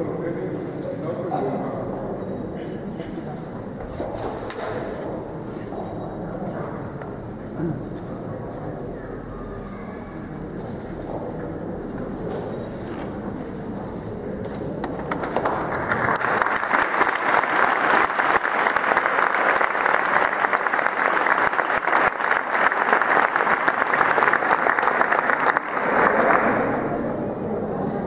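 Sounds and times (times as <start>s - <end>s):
audience applauding: 14.8s - 27.0s.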